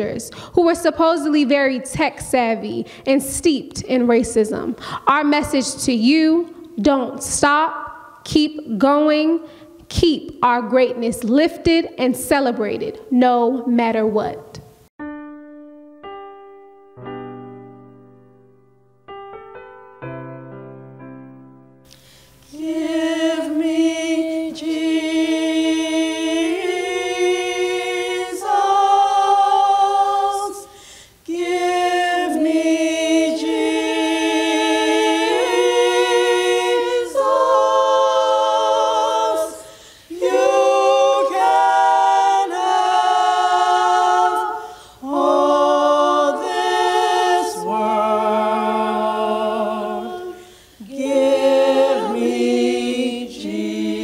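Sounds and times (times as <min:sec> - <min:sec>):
women singing in harmony: 0:22.4 - 0:54.0.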